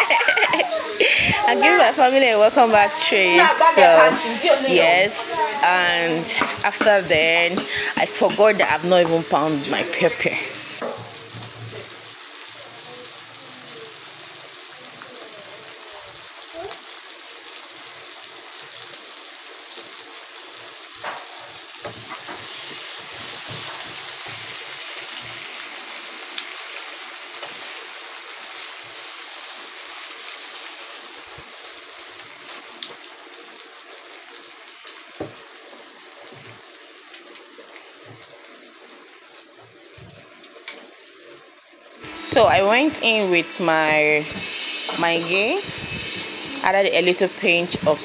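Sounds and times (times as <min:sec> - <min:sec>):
vegetables sizzling in oil: 0:00.0 - 0:48.0
wooden spatula knocking on pan: 0:06.3 - 0:08.4, 0:10.8 - 0:11.5.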